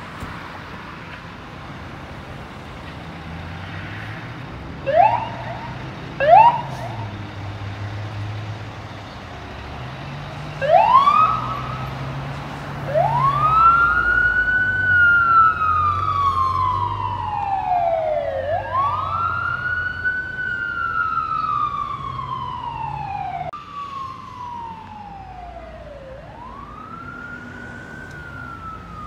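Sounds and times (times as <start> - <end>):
fire engine siren wailing: 4.8 - 8.0, 10.5 - 29.0.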